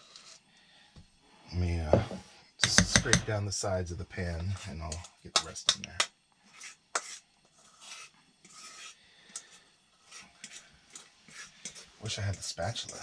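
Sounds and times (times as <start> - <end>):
utensil scraping metal bowl: 1.9 - 3.3, 6.5 - 13.0.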